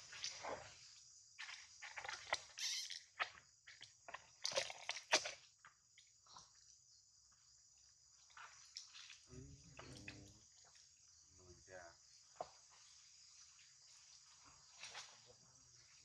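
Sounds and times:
high-pitched insect drone: 0:02.6 - 0:03.0.

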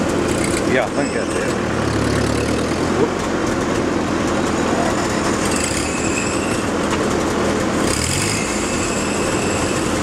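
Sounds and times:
tractor engines running: 0:00.0 - 0:10.0
brief high squeal: 0:05.4 - 0:06.8, 0:08.2 - 0:10.0.

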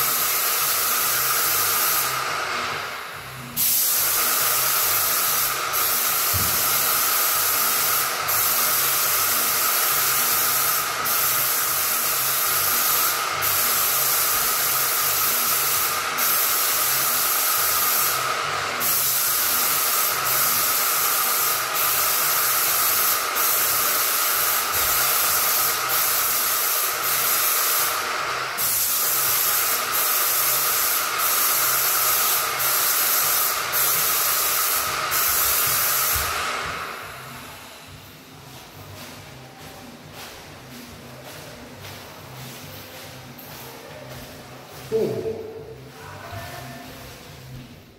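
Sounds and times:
paint spray gun hissing: 0:00.0 - 0:37.7.

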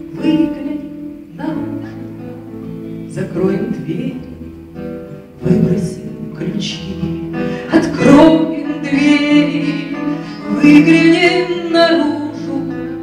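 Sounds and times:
acoustic guitar: 0:00.0 - 0:13.0
woman singing long notes: 0:05.4 - 0:13.0.

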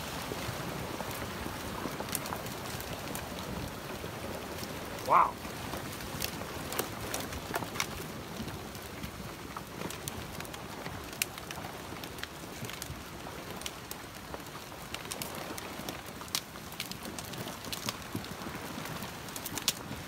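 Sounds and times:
flood water rushing: 0:00.0 - 0:07.5
logs and branches crackling: 0:00.0 - 0:20.0.

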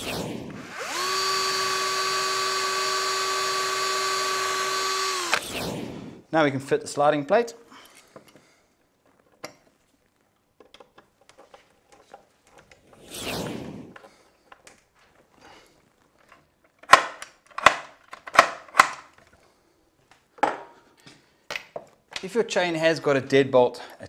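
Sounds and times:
screwdriver creaking and clicking: 0:00.8 - 0:05.4.

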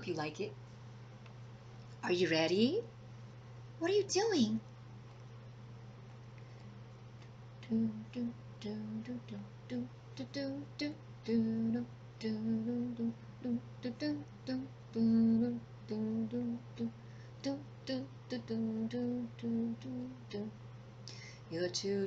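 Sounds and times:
low electrical hum: 0:00.0 - 0:22.0
woman humming a tune: 0:07.6 - 0:20.6.

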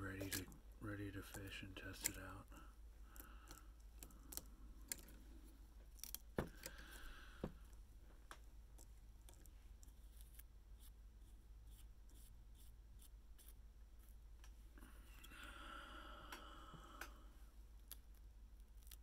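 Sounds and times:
small tool clicks and handling: 0:03.2 - 0:05.2.

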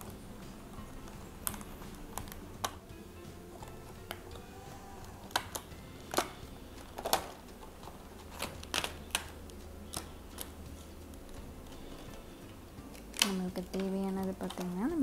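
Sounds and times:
plastic tiles clicking and crackling: 0:05.2 - 0:07.7, 0:08.3 - 0:10.6, 0:12.9 - 0:15.0.

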